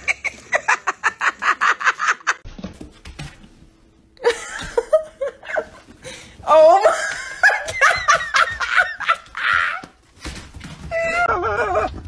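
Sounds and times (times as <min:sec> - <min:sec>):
person laughing in rapid bursts: 0:00.0 - 0:02.4, 0:06.8 - 0:09.8.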